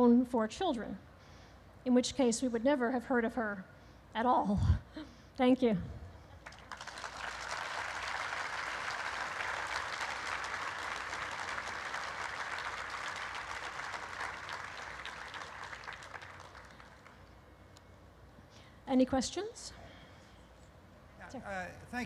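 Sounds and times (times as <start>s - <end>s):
audience applauding: 6.4s - 17.3s.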